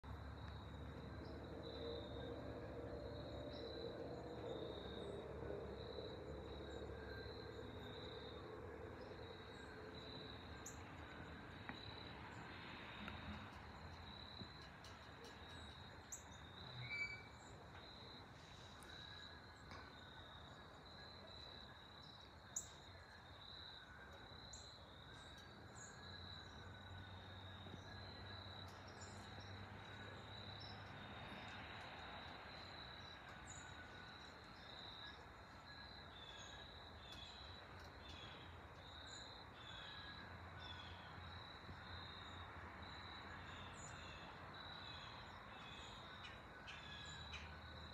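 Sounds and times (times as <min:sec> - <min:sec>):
bird chirps: 0:15.3 - 0:17.6.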